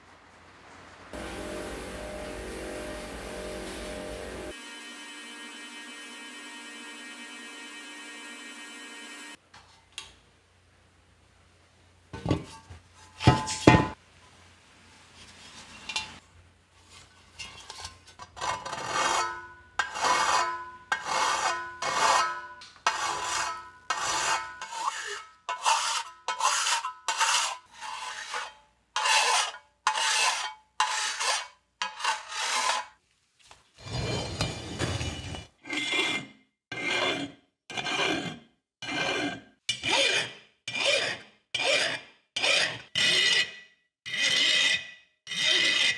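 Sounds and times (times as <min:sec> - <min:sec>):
filing metal rasping strokes: 0:18.4 - 0:33.0, 0:34.3 - 0:45.9.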